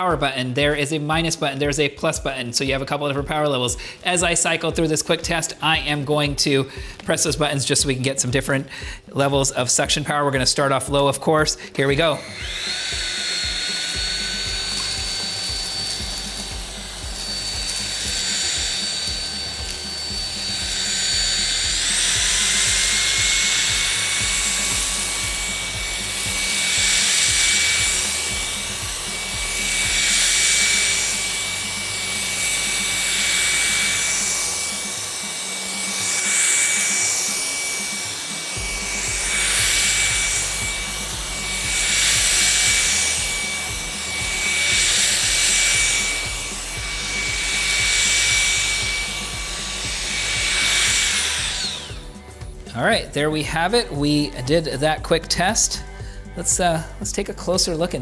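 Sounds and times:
stick vacuum motor whine: 0.0s - 58.0s.

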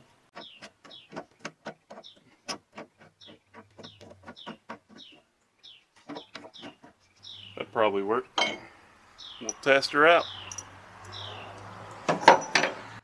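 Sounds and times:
bird chirping falling notes: 3.0s - 7.7s, 8.4s - 11.6s.

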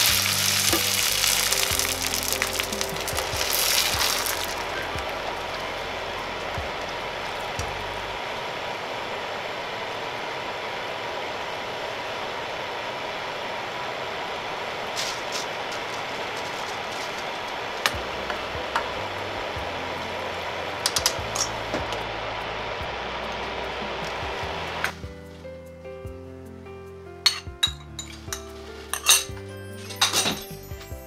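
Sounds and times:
fish skin sizzling in hot oil: 0.0s - 7.6s.

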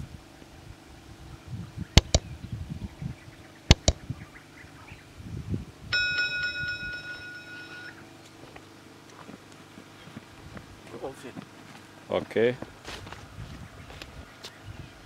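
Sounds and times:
faint low thumps: 1.8s - 4.2s
sharp mouse clicks: 2.0s - 2.3s, 3.7s - 4.0s
electronic bell chime: 5.9s - 8.0s.

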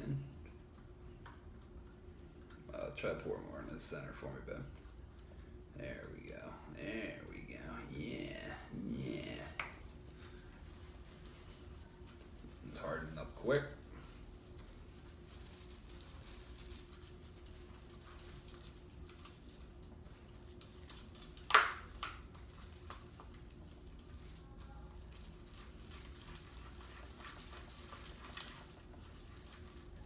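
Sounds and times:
steady faint hum: 0.0s - 30.0s
slime squishing and stirring: 8.3s - 30.0s.

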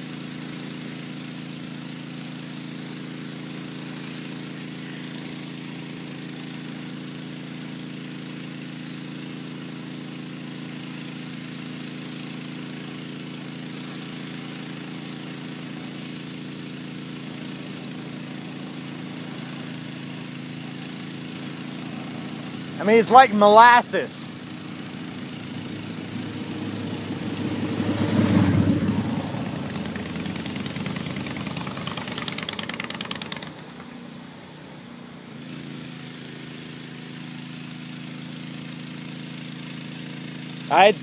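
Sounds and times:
engine running steady drone: 17.7s - 34.6s.

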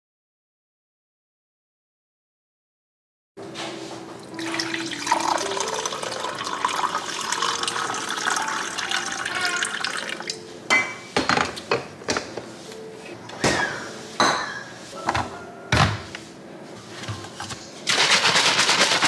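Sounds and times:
coffee pouring into mug: 4.3s - 10.4s.

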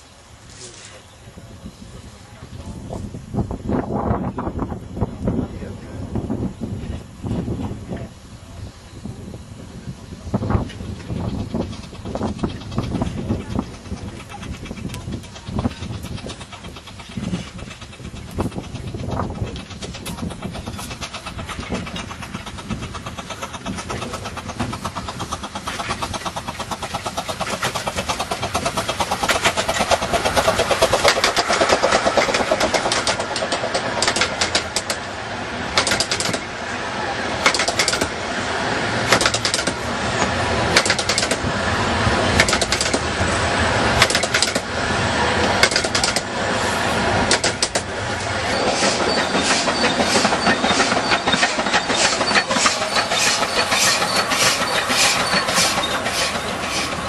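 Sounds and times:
miniature train passing: 0.0s - 57.0s
wheel clicks over rail joints: 10.6s - 35.0s, 35.8s - 36.5s, 37.4s - 38.2s, 39.1s - 41.5s, 42.4s - 43.1s, 44.0s - 44.7s, 45.4s - 46.3s, 47.2s - 47.9s, 48.6s - 57.0s.

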